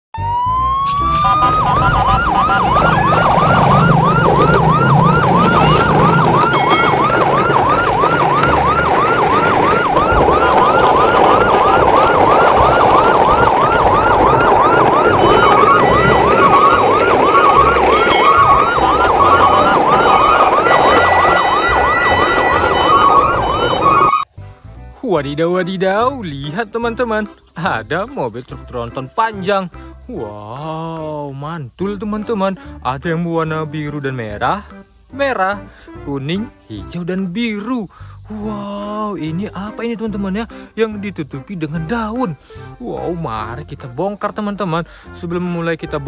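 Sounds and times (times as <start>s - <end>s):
siren yelping: 0.2s - 24.3s
background bustle: 1.2s - 24.2s
short high beeping tones: 6.5s - 7.0s.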